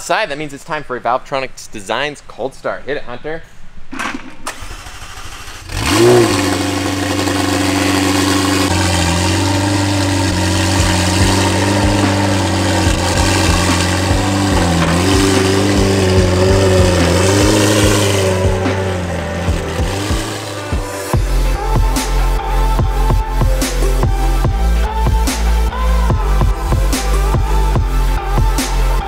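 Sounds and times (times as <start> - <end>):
starter motor cranking: 4.0 - 21.2
car engine revving and idling: 4.7 - 29.0.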